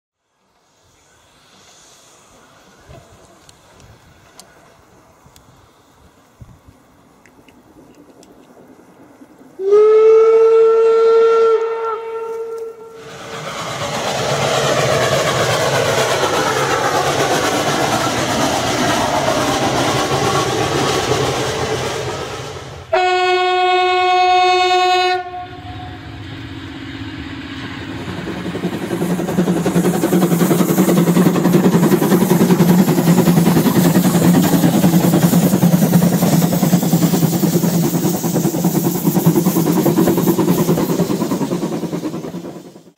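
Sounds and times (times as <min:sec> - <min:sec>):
railcar running: 0:00.2 - 0:42.9
railcar horn: 0:09.6 - 0:13.1, 0:22.9 - 0:26.1
steam locomotive whistle: 0:09.6 - 0:13.1, 0:22.9 - 0:26.9
locomotive exhaust chuffing: 0:26.0 - 0:42.9.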